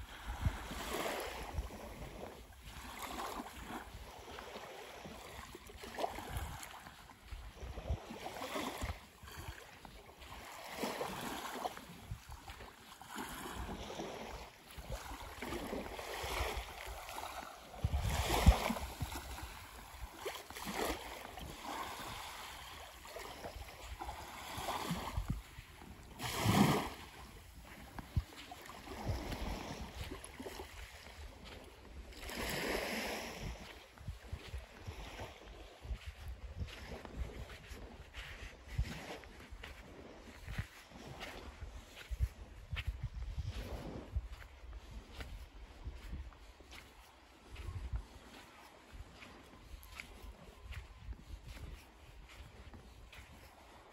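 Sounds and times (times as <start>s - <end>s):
wind rumbling on microphone: 0.0s - 10.5s, 11.2s - 12.8s, 13.4s - 53.9s
waves lapping on sandy shore: 0.0s - 53.9s.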